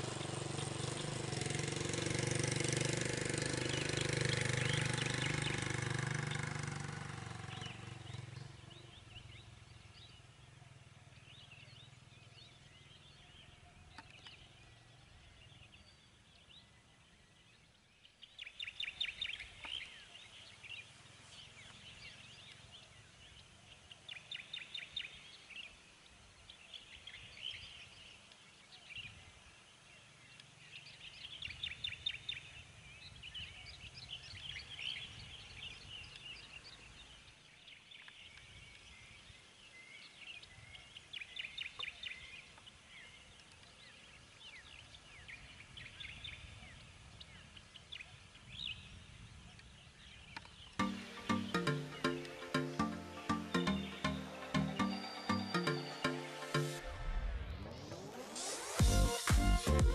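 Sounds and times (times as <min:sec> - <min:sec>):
birds singing trills: 0:02.6 - 0:06.6.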